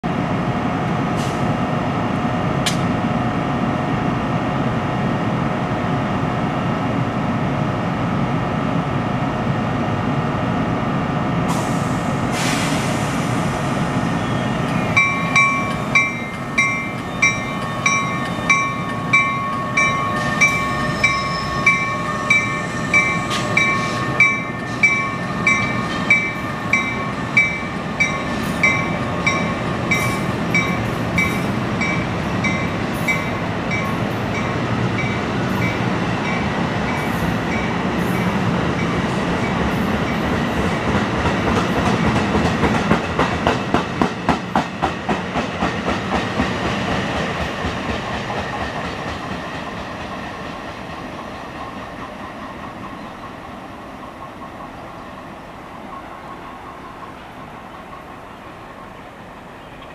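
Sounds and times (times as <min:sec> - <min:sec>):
locomotive machinery hum: 0:00.1 - 0:59.9
short hiss: 0:11.5 - 0:13.6
locomotive bell ringing: 0:14.3 - 0:40.2.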